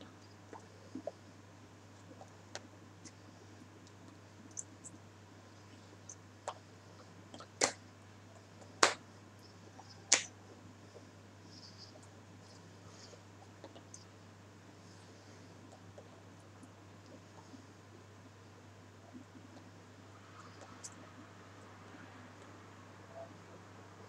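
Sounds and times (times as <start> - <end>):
low steady hum: 0.0 - 24.0
hands clicking and rustling: 7.3 - 7.8, 8.4 - 9.0, 10.1 - 10.3
hands slapping together: 7.6 - 7.8, 8.8 - 9.0, 10.1 - 10.3.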